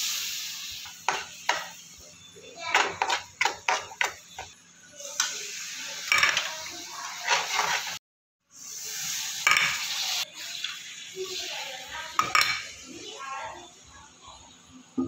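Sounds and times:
food sizzling: 0:00.0 - 0:15.0
spoon scraping a metal pan: 0:02.7 - 0:04.5, 0:06.1 - 0:08.0.

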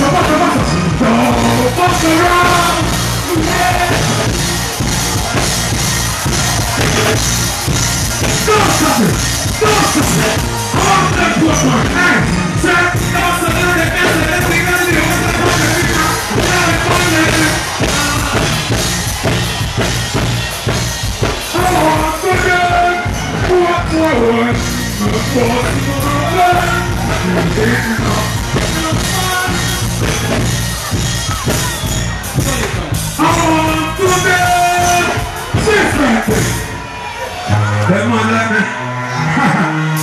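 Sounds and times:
man singing into a microphone: 0:00.0 - 0:04.2, 0:21.6 - 0:29.9
dancehall backing beat: 0:00.0 - 0:36.9.

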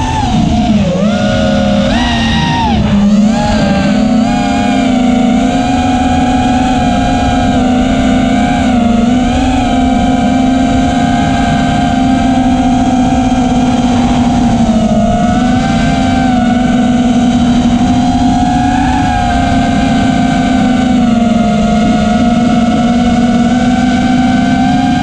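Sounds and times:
drone motors buzzing whine: 0:00.0 - 0:25.0
rushing wind noise: 0:00.0 - 0:25.0.

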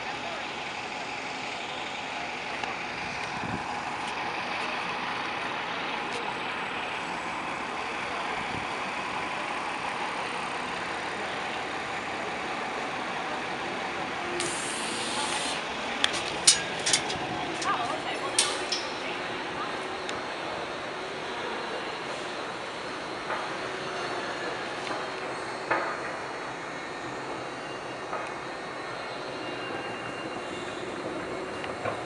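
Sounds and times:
road traffic: 0:00.0 - 0:32.0
doors opening with a hiss: 0:14.4 - 0:19.1.

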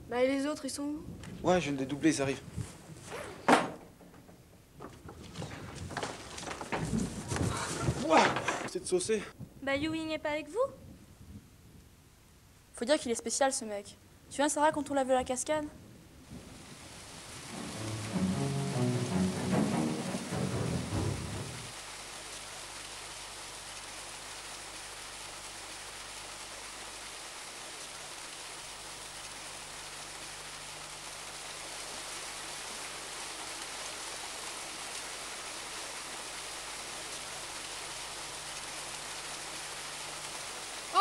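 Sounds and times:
small waterfall pouring into pool: 0:21.4 - 0:41.0.

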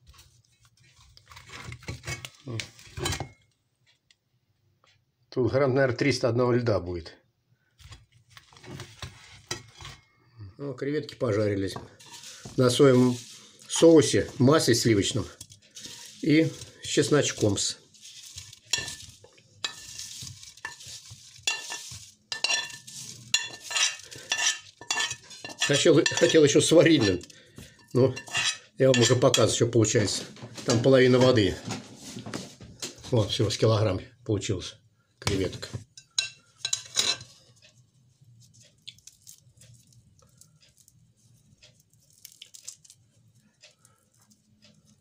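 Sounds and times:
metal spoon scraping frying pan: 0:11.8 - 0:29.6, 0:36.0 - 0:37.8
shrimp shells cracking and tearing: 0:38.8 - 0:40.9, 0:41.8 - 0:43.2.

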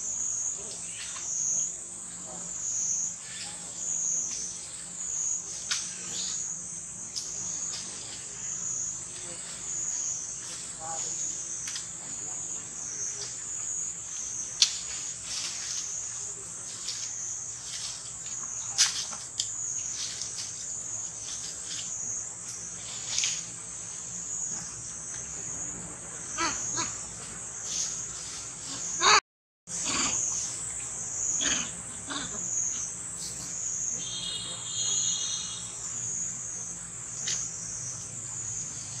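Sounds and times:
forest insects droning: 0:00.0 - 0:39.0.

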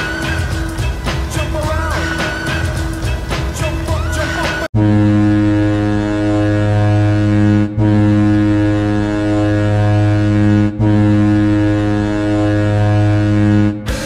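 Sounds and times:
deep goal horn blasts: 0:04.7 - 0:14.0.

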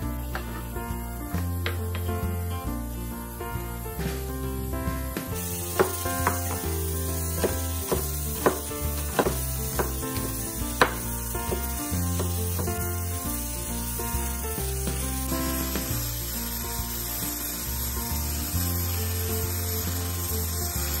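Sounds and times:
background music: 0:00.0 - 0:21.0
cleaver chopping on wooden board: 0:05.2 - 0:06.7, 0:07.4 - 0:12.7.

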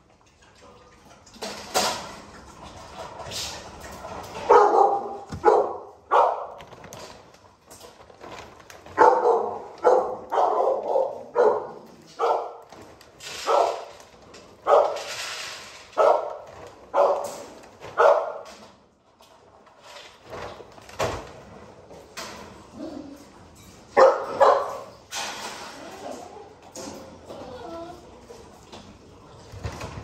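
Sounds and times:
dogs barking: 0:04.4 - 0:06.6, 0:08.9 - 0:12.7, 0:14.6 - 0:15.1, 0:16.0 - 0:18.5, 0:23.9 - 0:25.0.

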